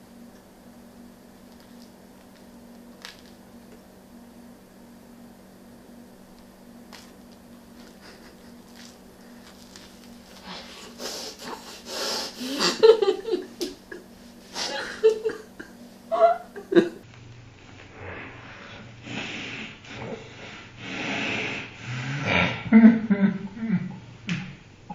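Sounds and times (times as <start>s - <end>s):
woman laughing: 7.8s - 9.0s, 10.5s - 17.0s.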